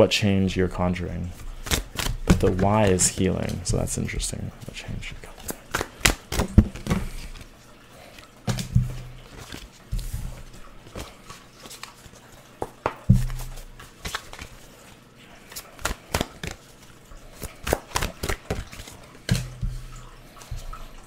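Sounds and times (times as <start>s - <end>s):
cards shuffling and flicking: 1.4s - 3.7s, 5.1s - 7.5s, 8.5s - 21.0s
dull thumps on a table: 12.6s - 13.5s.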